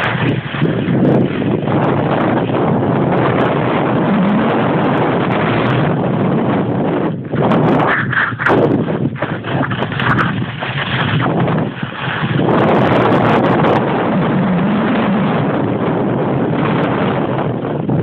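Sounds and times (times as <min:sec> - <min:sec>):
wind on microphone: 0:00.0 - 0:18.0
skis scraping snow: 0:07.4 - 0:13.0.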